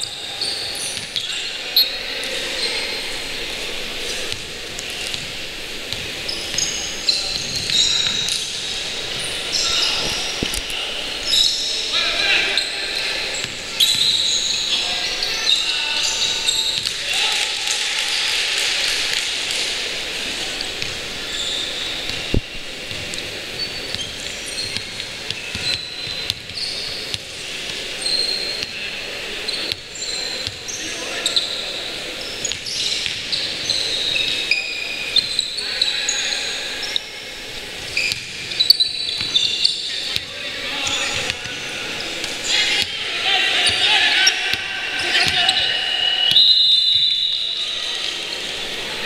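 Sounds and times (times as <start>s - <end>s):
sneakers squeaking on floor: 0.0s - 3.4s, 4.0s - 17.0s, 20.6s - 28.8s, 29.4s - 48.8s
basketball bouncing: 23.9s - 27.2s.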